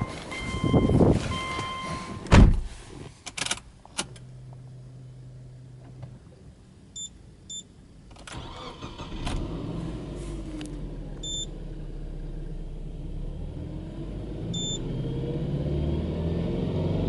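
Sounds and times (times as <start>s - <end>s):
short electronic beeps: 0.0s - 2.3s, 11.2s - 11.5s, 14.6s - 14.8s
car engine idling and revving: 3.8s - 6.3s, 8.3s - 17.0s.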